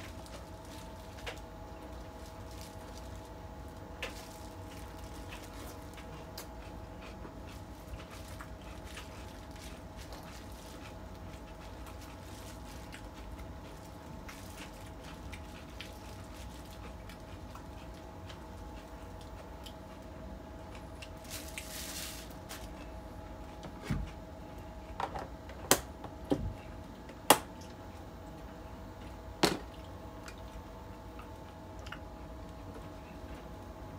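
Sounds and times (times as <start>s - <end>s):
soft squishing of cabbage: 0.0s - 25.0s
steady hum: 0.0s - 33.9s.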